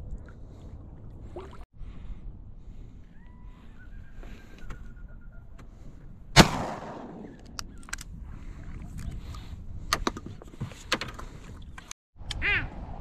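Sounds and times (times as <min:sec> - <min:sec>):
shotgun shot: 0:06.4 - 0:07.4.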